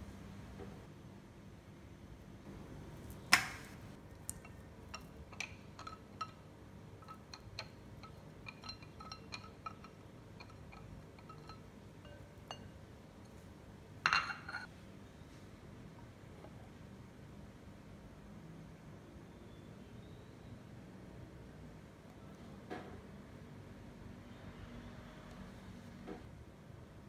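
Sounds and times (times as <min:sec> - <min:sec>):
clink on glass: 0:07.0 - 0:12.8, 0:14.1 - 0:14.7.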